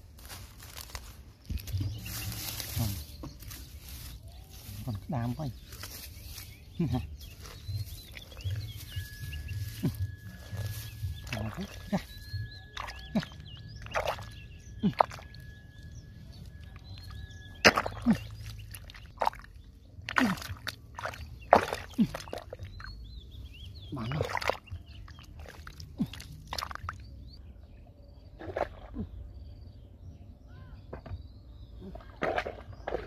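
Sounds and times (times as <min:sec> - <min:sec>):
faint bird chirps: 0:00.2 - 0:33.0
wet mud squelches and sloshes: 0:07.6 - 0:23.0, 0:23.9 - 0:27.2, 0:28.3 - 0:29.2, 0:31.8 - 0:33.0.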